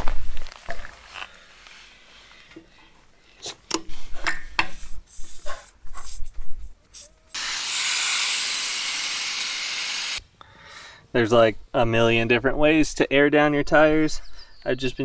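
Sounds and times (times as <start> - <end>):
air hissing out of tire: 7.0 - 10.2.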